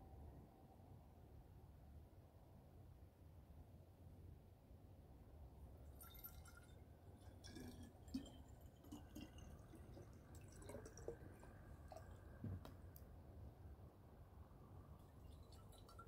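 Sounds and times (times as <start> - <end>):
water trickling into bottle: 5.8 - 13.0, 15.0 - 16.0
small splashes and clicks: 5.9 - 13.1, 15.0 - 16.0.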